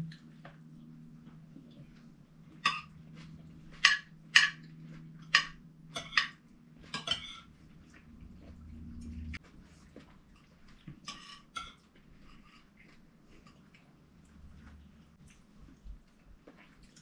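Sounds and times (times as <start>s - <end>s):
cutlery clinking on plates: 2.6s - 3.0s, 3.8s - 7.5s.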